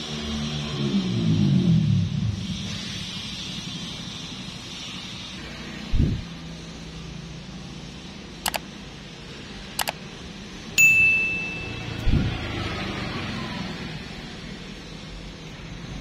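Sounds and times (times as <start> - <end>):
double mouse clicks: 8.4 - 8.6, 9.8 - 10.0
bright bell ding: 10.8 - 12.0.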